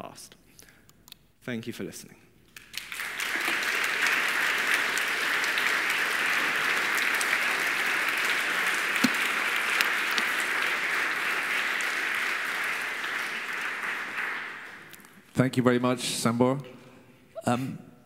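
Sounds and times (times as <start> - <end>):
audience applauding: 2.6 - 15.2
knock: 9.0 - 9.3.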